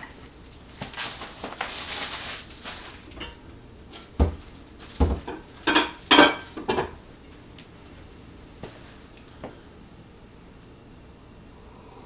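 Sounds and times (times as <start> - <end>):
soft rustle: 0.5 - 3.2
dull thumps: 4.0 - 5.5.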